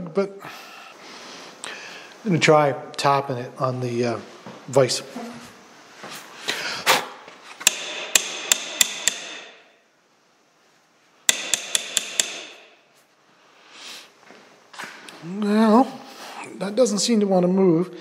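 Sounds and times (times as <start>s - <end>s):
metal part knocking on vise: 11.3s - 12.7s.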